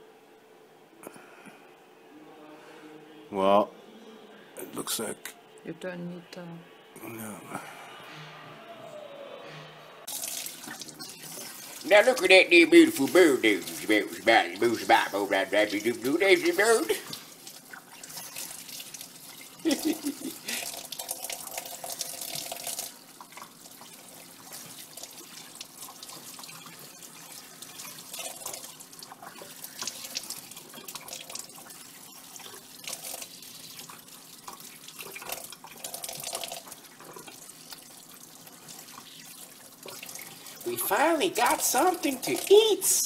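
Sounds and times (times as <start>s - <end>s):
tap water running into sink: 10.1s - 42.9s
bird rinsed and rubbed by hand: 10.2s - 42.8s.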